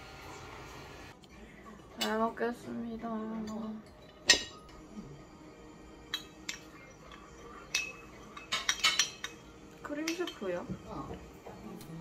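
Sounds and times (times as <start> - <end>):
metal spoon clinking porcelain: 6.1 - 10.6.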